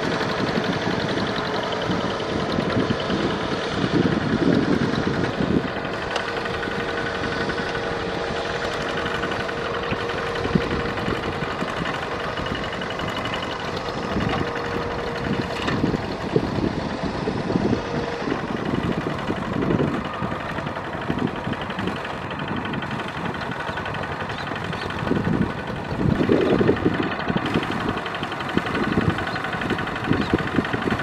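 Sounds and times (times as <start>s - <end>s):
diesel tractor engine running: 0.0s - 31.0s
wheels churning through mud: 0.0s - 31.0s.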